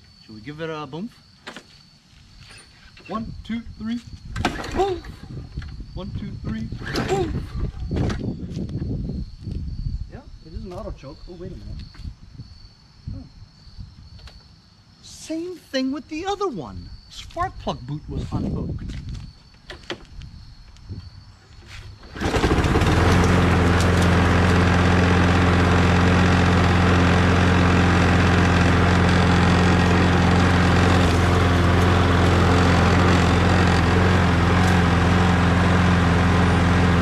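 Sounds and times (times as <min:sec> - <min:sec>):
lawn mower engine starting and running: 0:04.4 - 0:05.7, 0:06.4 - 0:08.2, 0:21.7 - 0:37.0.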